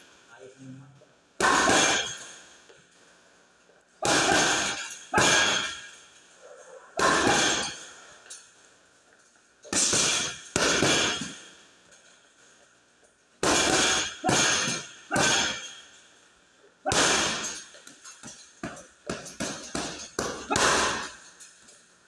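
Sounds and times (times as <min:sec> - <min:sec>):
punches on heavy punching bag: 0:01.4 - 0:02.2, 0:04.0 - 0:05.9, 0:07.0 - 0:07.8, 0:09.7 - 0:11.4, 0:13.4 - 0:15.7, 0:16.9 - 0:17.6, 0:18.6 - 0:21.1.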